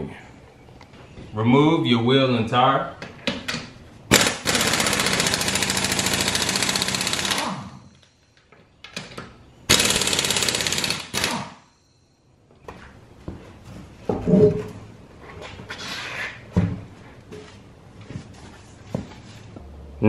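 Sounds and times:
pneumatic impact wrench hammering: 0:04.1 - 0:08.0, 0:09.7 - 0:11.7.

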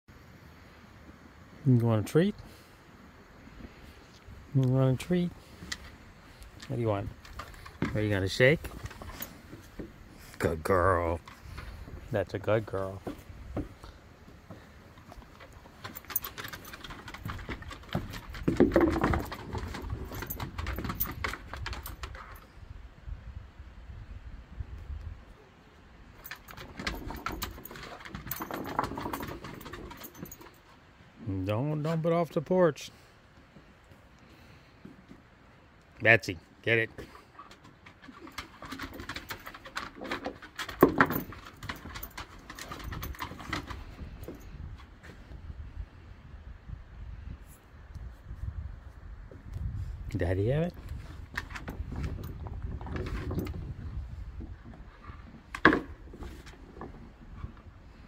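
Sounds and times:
dog claws clicking on wood: 0:15.0 - 0:22.4, 0:26.2 - 0:30.8, 0:37.4 - 0:44.4.

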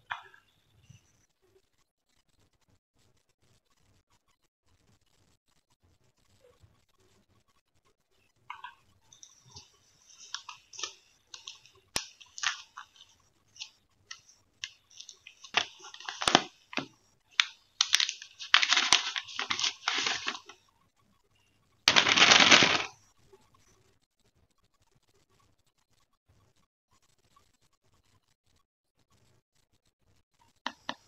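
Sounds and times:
plastic sleeve crinkling: 0:08.6 - 0:20.6, 0:21.9 - 0:23.0.

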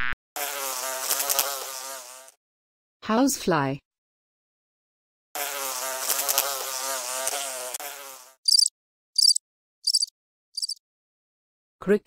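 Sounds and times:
housefly buzzing: 0:00.0 - 0:02.4, 0:05.4 - 0:10.8
cricket chirping: 0:08.5 - 0:10.8.

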